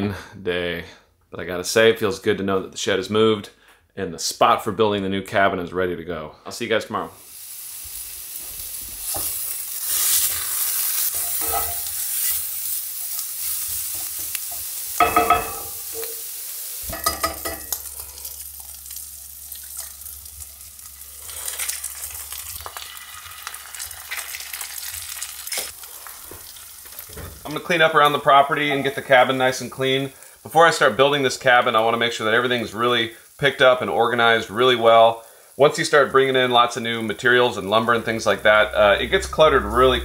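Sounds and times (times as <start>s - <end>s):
meat sizzling in a skillet: 7.2s - 38.5s
utensil scraping a pan: 9.0s - 16.3s.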